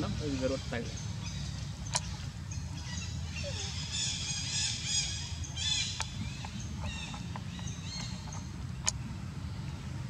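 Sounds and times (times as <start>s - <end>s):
monkey high squealing call: 2.8s - 6.0s.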